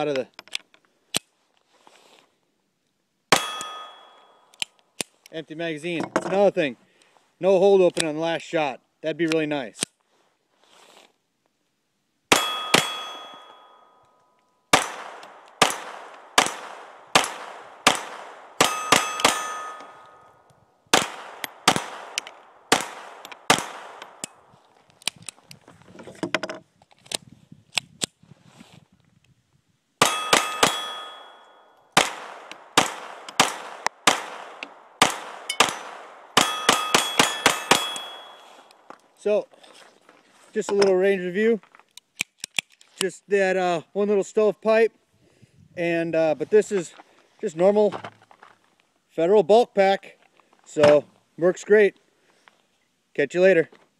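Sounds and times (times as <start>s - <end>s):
pistol shots: 3.3s - 4.2s, 14.7s - 20.2s, 20.9s - 24.4s, 30.0s - 38.8s
bullet clanging on steel target: 3.3s - 4.6s, 12.3s - 14.5s, 18.6s - 20.5s, 30.0s - 31.9s, 35.5s - 38.8s.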